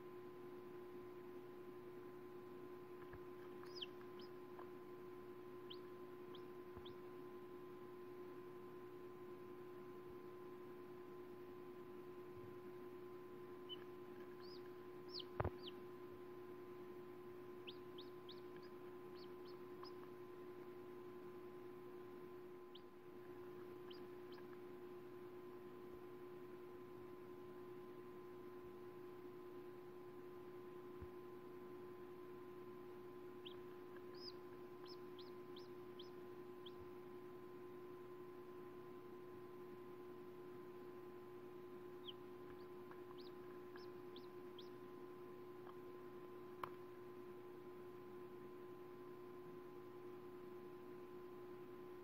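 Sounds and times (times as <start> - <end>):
faint steady hum: 0.0 - 52.0
chick peeping: 3.0 - 4.7, 5.5 - 7.2, 13.6 - 15.9, 17.5 - 20.7, 22.7 - 24.7, 33.4 - 37.1, 41.9 - 44.9.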